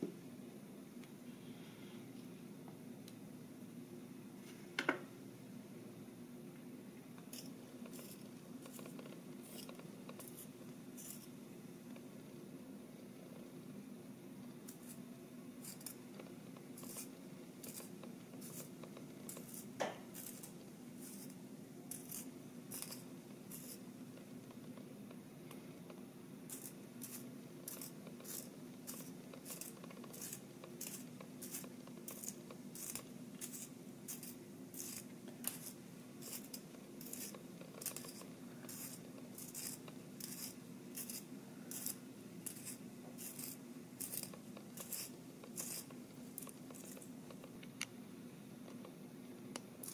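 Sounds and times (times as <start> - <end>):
pencil sharpener shaving wood: 7.3 - 11.3, 19.3 - 23.8, 26.5 - 47.1.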